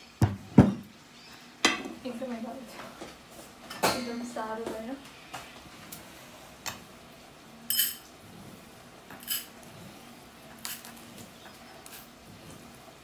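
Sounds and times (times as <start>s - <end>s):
utensils and dishes clinking: 3.6s - 4.4s, 7.7s - 8.1s, 9.1s - 9.6s, 10.5s - 12.1s.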